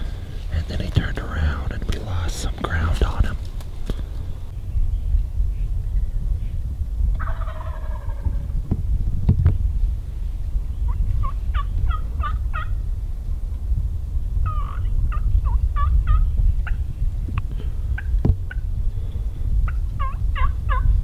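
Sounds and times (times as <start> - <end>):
low rumble: 0.0 - 21.0
turkey gobbling: 7.1 - 8.4, 14.4 - 16.8, 18.0 - 18.6, 19.7 - 20.9.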